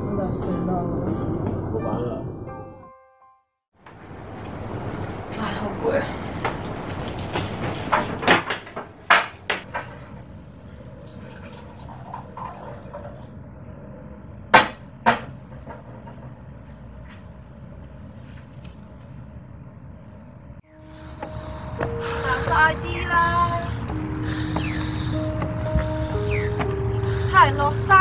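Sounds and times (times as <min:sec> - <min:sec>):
objects knocking and clattering: 0:14.6 - 0:16.7.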